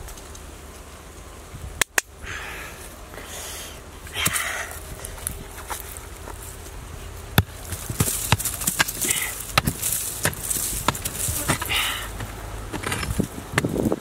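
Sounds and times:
hoe striking hard earth: 0:04.1 - 0:06.4, 0:07.3 - 0:14.0.

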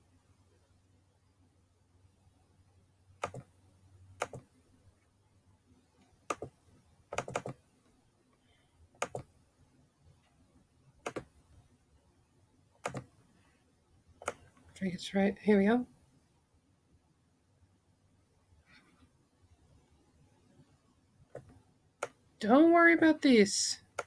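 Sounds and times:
computer mouse clicking: 0:03.2 - 0:03.5, 0:04.2 - 0:04.5, 0:06.3 - 0:07.6, 0:09.0 - 0:09.3, 0:11.0 - 0:11.4, 0:12.8 - 0:13.2, 0:14.2 - 0:14.7, 0:21.3 - 0:22.2.

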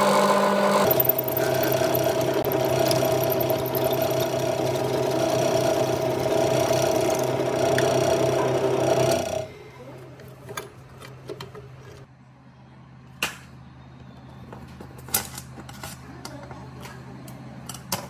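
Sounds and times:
drill press cutting steel: 0:00.0 - 0:09.5.

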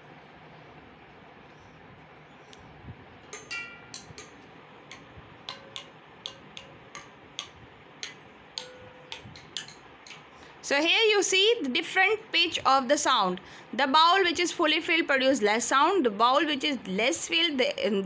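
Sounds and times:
water bowls struck with sticks: 0:03.3 - 0:10.2.

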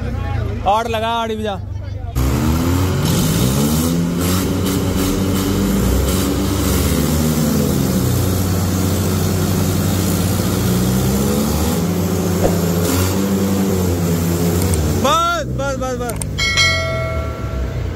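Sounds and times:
tractor engines running under load: 0:00.0 - 0:17.9
engine revving: 0:02.2 - 0:14.8.

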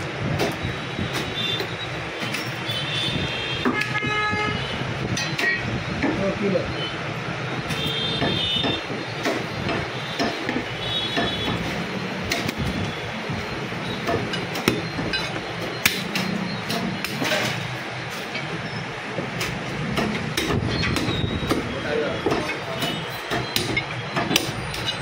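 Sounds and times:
traffic and street noise: 0:00.0 - 0:25.0
cleaver chopping bones on wood: 0:19.5 - 0:25.0.

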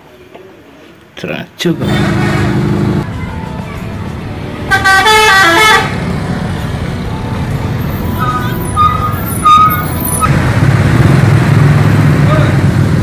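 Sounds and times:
musical bus horn: 0:04.6 - 0:06.0.

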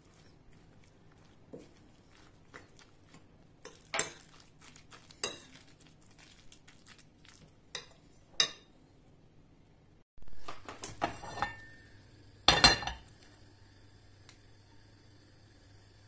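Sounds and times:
spoon stirring batter in bowl: 0:00.0 - 0:08.6.

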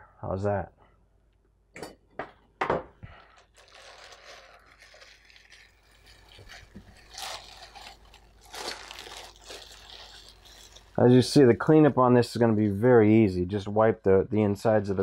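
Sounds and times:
plastic bag crinkling: 0:03.1 - 0:11.7.

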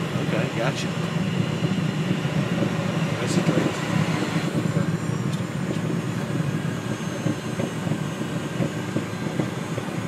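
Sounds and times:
jet engines humming in cockpit: 0:00.0 - 0:10.0.

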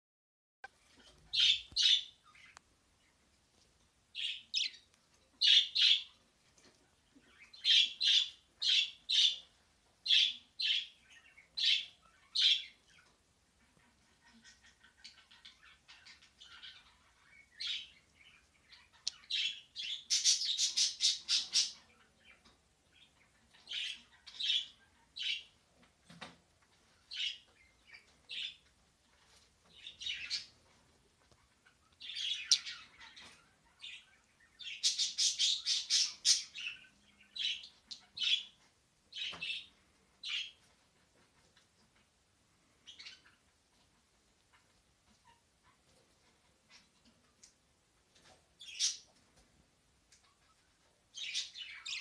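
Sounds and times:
bird chirping and squawking: 0:01.1 - 0:02.6, 0:07.3 - 0:09.5, 0:13.8 - 0:21.9, 0:31.5 - 0:38.6.

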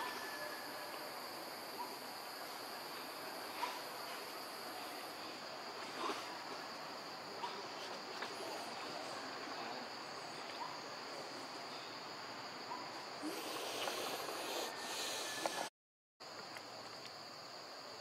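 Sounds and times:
constant hiss: 0:00.0 - 0:18.0
high-pitched insect drone: 0:13.2 - 0:15.7.

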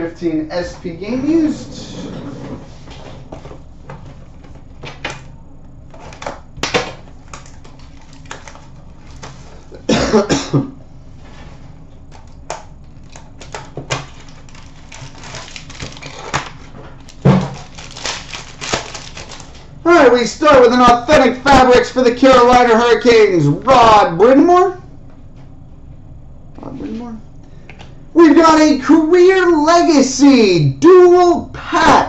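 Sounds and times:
wrapper crinkling and tearing: 0:06.0 - 0:09.7, 0:13.0 - 0:19.7.

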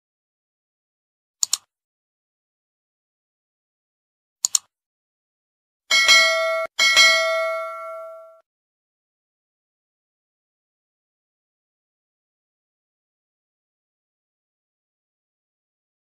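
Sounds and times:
mouse clicks: 0:01.4 - 0:01.7, 0:04.4 - 0:04.7
notification bell chime: 0:05.9 - 0:08.4.

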